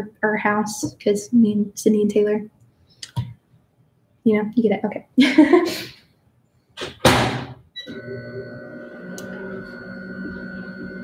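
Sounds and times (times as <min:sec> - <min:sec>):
microwave humming and whining: 0:07.8 - 0:11.0.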